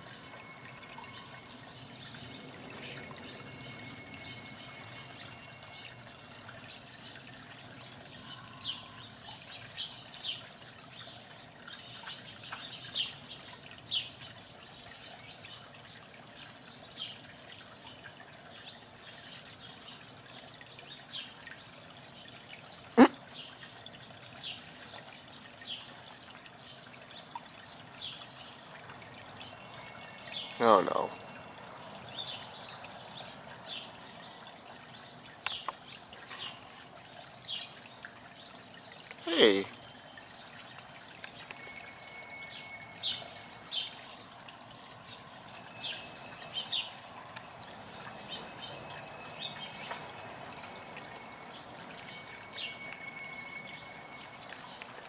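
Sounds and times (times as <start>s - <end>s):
water trickling: 0.0s - 55.0s
bird chirps: 41.4s - 44.2s, 51.1s - 54.8s.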